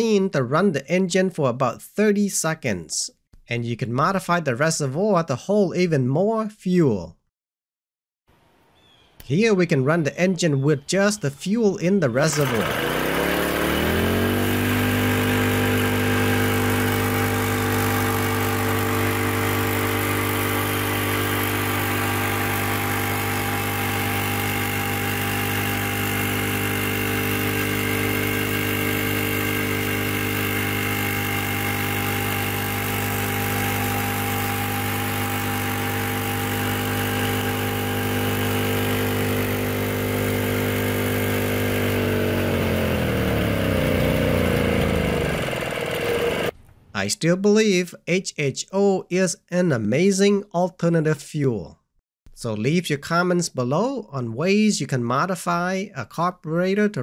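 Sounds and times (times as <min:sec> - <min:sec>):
generator engine running: 0:12.3 - 0:46.6.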